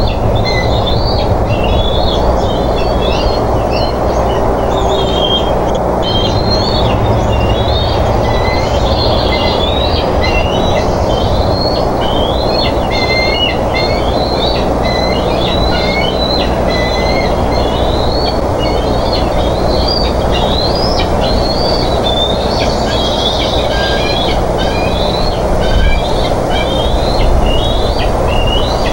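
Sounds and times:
low microphone rumble and hum: 0.0s - 28.9s
young eagles chirping: 0.0s - 28.9s.

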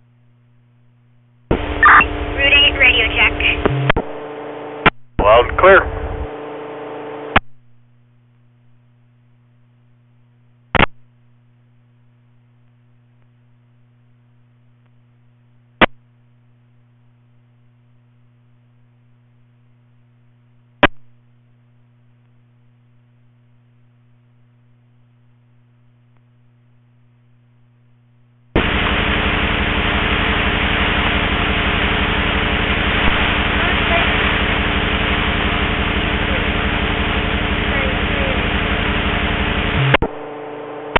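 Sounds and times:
faint steady radio hum: 0.0s - 40.9s
loud radio static with buzz: 1.5s - 7.5s, 10.7s - 11.0s, 28.6s - 40.9s
short radio clicks: 10.8s - 11.0s.

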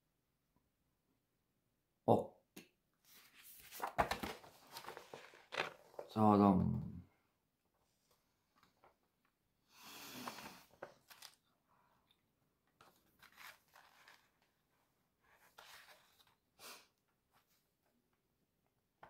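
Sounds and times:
paper pages rustling: 3.1s - 6.1s, 10.3s - 11.4s, 12.8s - 16.4s.

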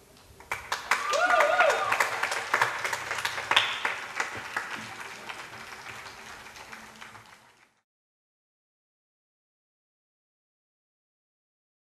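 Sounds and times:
audience applauding: 0.4s - 7.8s.

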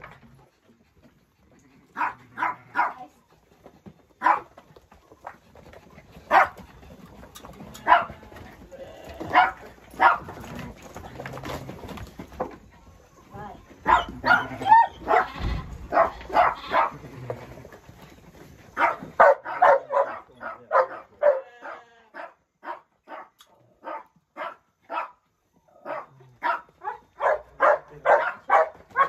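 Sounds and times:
dog barking: 2.0s - 3.1s, 4.2s - 4.5s, 6.3s - 6.6s, 7.8s - 8.2s, 9.3s - 10.4s, 13.8s - 17.0s, 18.8s - 25.2s, 25.8s - 29.0s.

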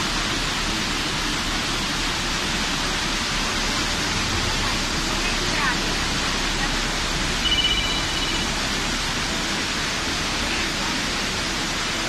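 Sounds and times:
floodwater rushing: 0.0s - 12.0s
brief high-pitched tone: 7.4s - 8.6s.

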